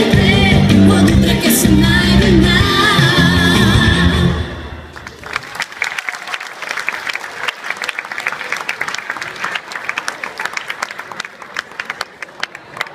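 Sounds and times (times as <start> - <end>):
audience applauding: 4.9 - 12.9.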